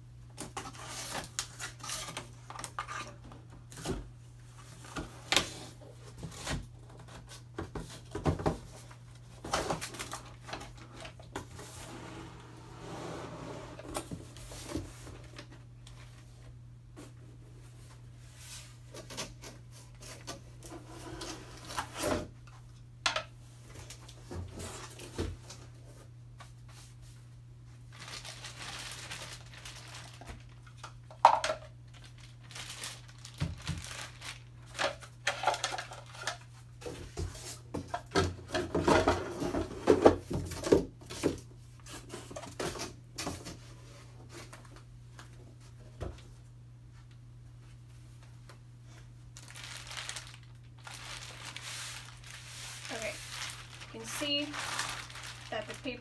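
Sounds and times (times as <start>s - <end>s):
plastic rustling: 27.7s - 40.9s, 48.9s - 56.0s.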